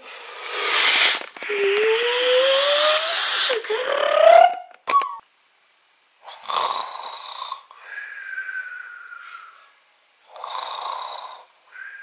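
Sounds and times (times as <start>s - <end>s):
man snoring: 6.3s - 7.7s, 10.3s - 11.5s.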